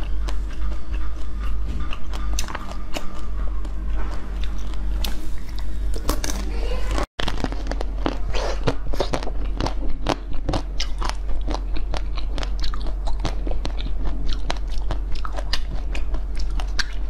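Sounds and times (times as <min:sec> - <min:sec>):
crunching and chewing ice: 0:07.2 - 0:17.0.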